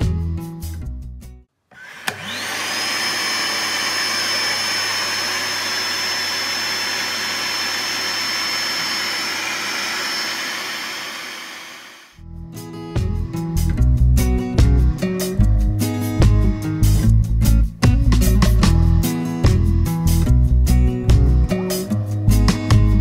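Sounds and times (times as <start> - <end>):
electric pump whining: 1.7 - 12.2.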